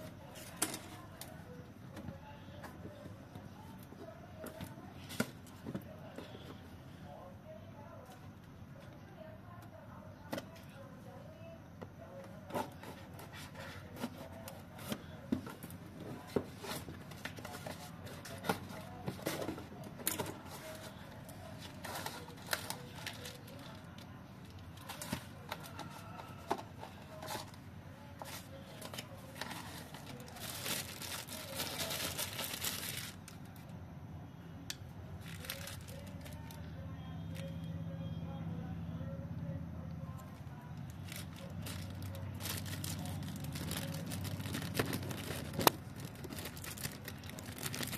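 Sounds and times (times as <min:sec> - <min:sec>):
packaging rustling and crinkling: 0:28.2 - 0:33.4, 0:35.2 - 0:36.6, 0:40.8 - 0:47.9.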